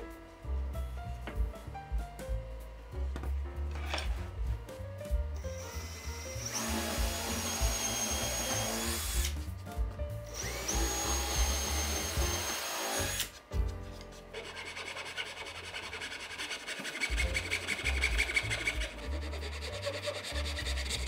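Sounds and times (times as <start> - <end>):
background music: 0.0 - 14.9, 17.0 - 21.0
drill motor whining: 5.4 - 9.3, 10.3 - 13.3.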